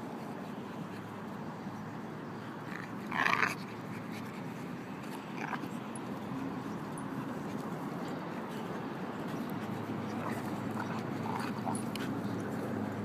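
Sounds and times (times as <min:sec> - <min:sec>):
dogs wrestling: 0:02.6 - 0:13.0.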